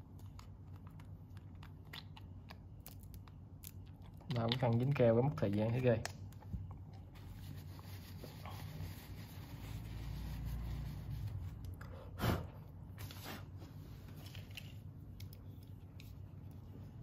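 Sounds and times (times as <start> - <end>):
tissue wiping glass: 7.1 - 11.7.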